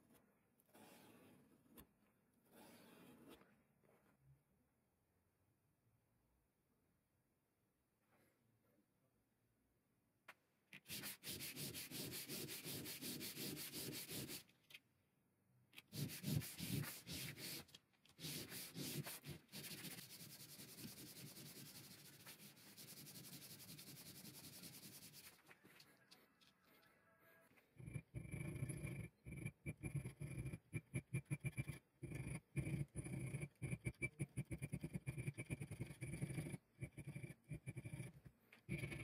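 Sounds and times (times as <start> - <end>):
metal rubbed on sandpaper: 10.9 - 14.5, 15.8 - 26.9, 27.8 - 39.0.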